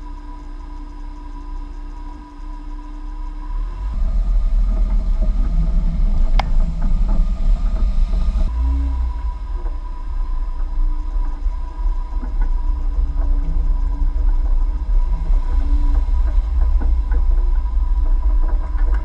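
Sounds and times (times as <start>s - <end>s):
vehicle engine rumble: 0.0s - 19.0s
rattles: 3.9s - 19.0s.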